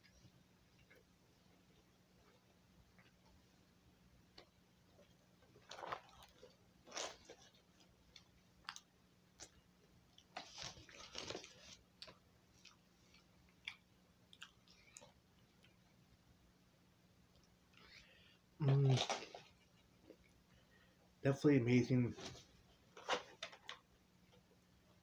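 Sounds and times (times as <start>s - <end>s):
person chewing: 5.1s - 10.4s, 11.0s - 15.9s.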